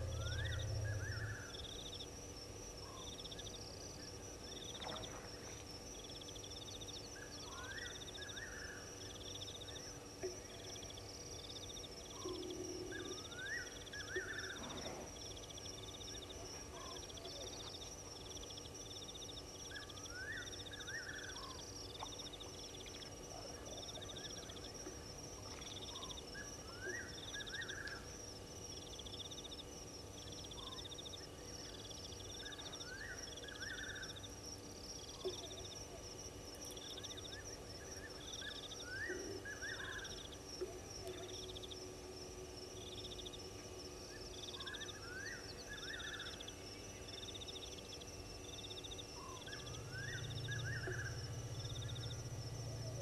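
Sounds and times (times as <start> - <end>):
low hum: 0.0 - 7.6, 20.7 - 53.0
crickets trilling: 0.0 - 53.0
lower rising insect call: 0.0 - 53.0
pulsed insect chirp: 0.0 - 53.0.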